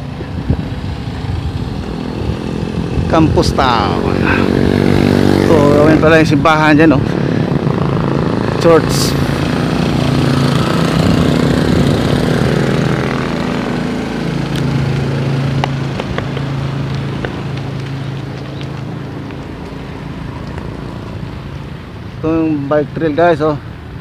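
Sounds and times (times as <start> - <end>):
wind rushing: 0.0 - 15.9
engine hum: 0.0 - 24.0.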